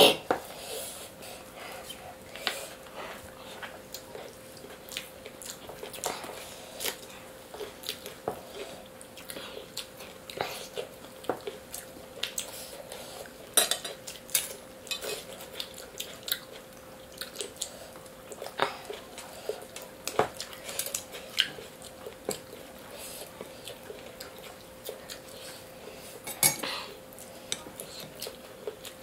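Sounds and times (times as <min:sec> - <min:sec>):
faint steady hum: 0:00.0 - 0:29.0
chewing: 0:01.4 - 0:29.0.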